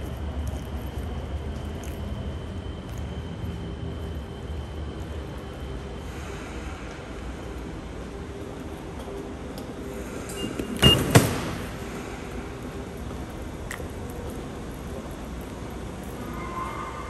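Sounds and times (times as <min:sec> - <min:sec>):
station concourse hum: 0:00.0 - 0:17.0
ticket gate beep: 0:10.3 - 0:11.2.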